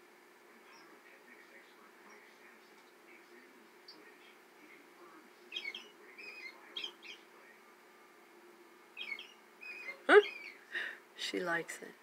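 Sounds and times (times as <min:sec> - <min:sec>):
robin song from small speaker: 0:05.5 - 0:07.2, 0:09.0 - 0:10.6.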